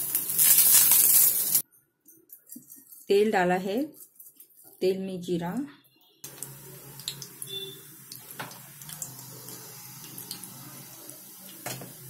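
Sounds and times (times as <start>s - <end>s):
seeds sizzling in hot oil: 0.0s - 1.6s, 6.2s - 12.0s.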